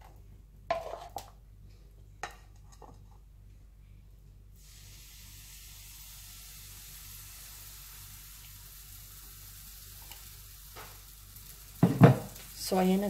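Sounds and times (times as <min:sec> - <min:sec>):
batter sizzling in a frying pan: 0:04.6 - 0:13.0.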